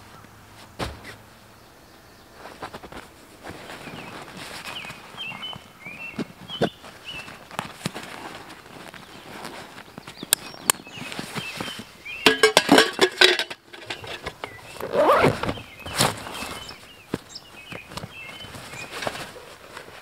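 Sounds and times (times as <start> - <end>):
backpack fabric rustling: 2.4 - 10.2, 13.9 - 20.0.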